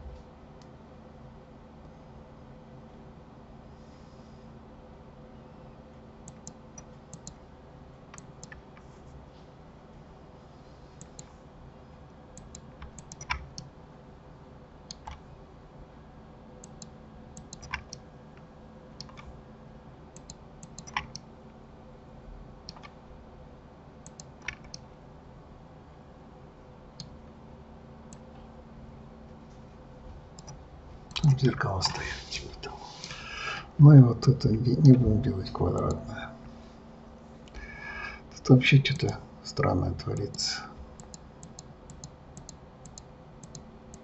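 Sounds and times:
faint low hum: 0.0s - 44.0s
mouse buttons clicking: 6.3s - 7.4s, 12.4s - 13.7s, 16.6s - 18.0s, 20.2s - 21.2s, 35.8s - 36.0s
keyboard keys clicking: 12.4s - 13.7s, 16.6s - 18.0s.

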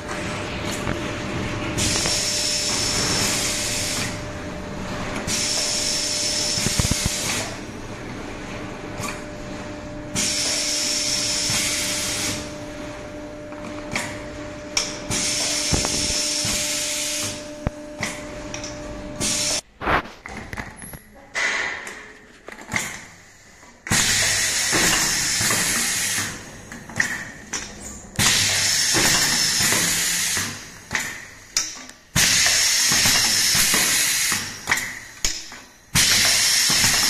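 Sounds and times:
steady machine hum: 0.0s - 20.3s.

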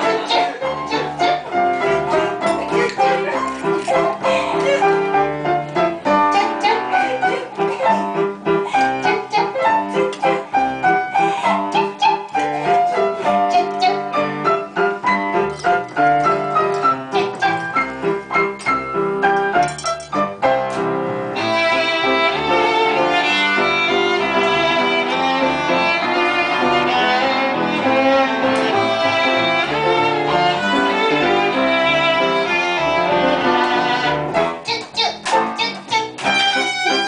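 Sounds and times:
violin melody: 0.0s - 19.2s, 21.0s - 34.5s, 36.2s - 37.0s
piano playing clipped notes: 0.0s - 37.0s.

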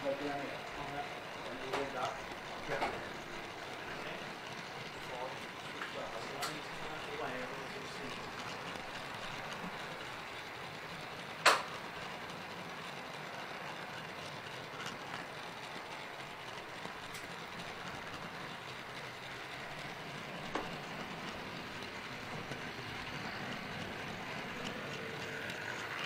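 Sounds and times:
model train rolling rumble: 0.0s - 26.0s.

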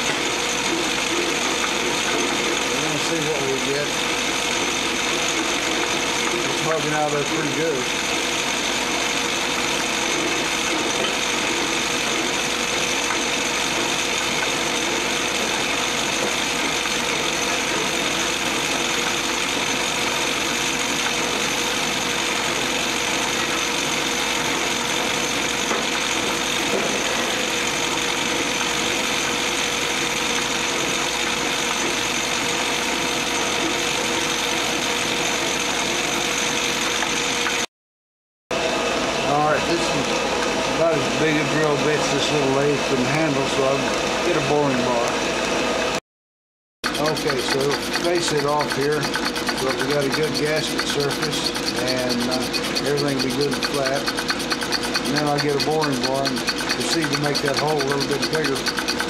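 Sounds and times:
metal lathe drilling: 0.0s - 37.4s, 46.8s - 59.0s
machining whine: 46.9s - 59.0s.

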